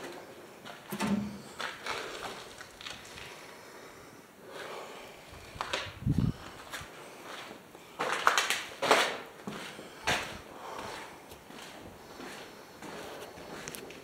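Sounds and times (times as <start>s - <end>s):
footsteps walking: 0.0s - 3.4s, 5.4s - 14.0s
scuffing steps: 6.5s - 14.0s.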